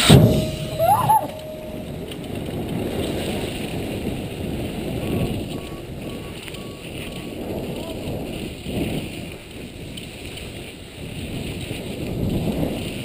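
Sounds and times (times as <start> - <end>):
start gate tone: 0.0 - 2.4
bike tyres rushing on track: 0.0 - 13.0
wind on microphone: 0.0 - 13.0
short shout: 0.8 - 1.4.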